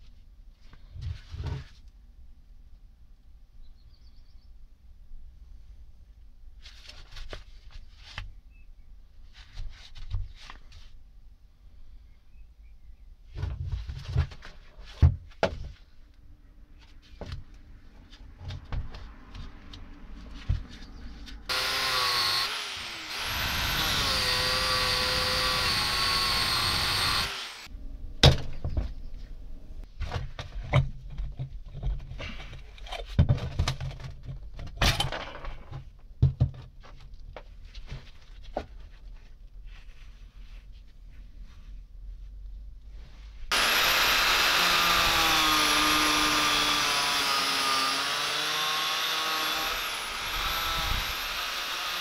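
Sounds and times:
angle grinder grinding metal: 21.5s - 27.7s, 43.5s - 52.0s.

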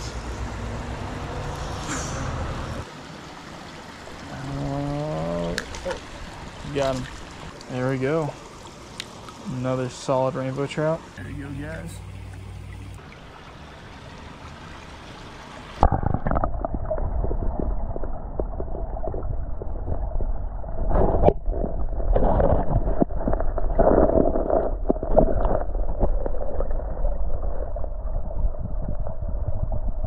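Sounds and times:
stream water running: 0.0s - 27.6s.

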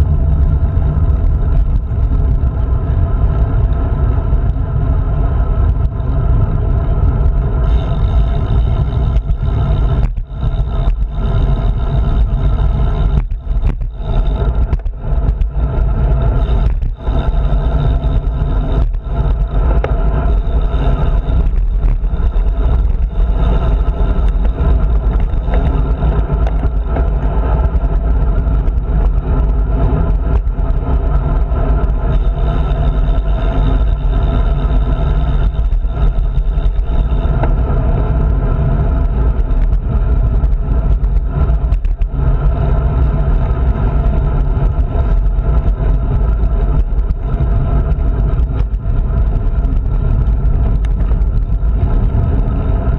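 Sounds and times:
road and tyre noise: 0.0s - 52.9s
wind rushing over microphone: 0.0s - 52.9s.

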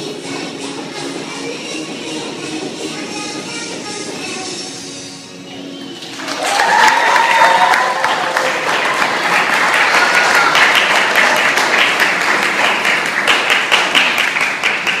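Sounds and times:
audience applauding: 6.0s - 15.0s.

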